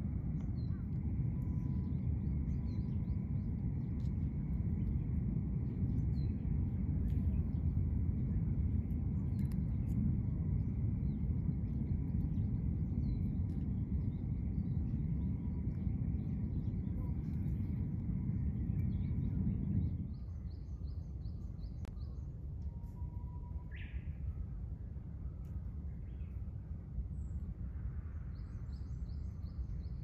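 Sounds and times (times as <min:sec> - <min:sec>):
steady low rumble: 0:00.0 - 0:30.0
faint bird chirps: 0:00.4 - 0:03.6, 0:13.0 - 0:26.6.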